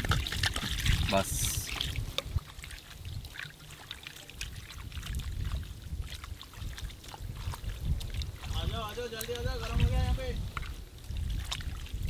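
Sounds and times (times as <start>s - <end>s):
small water splashes: 0.0s - 12.0s.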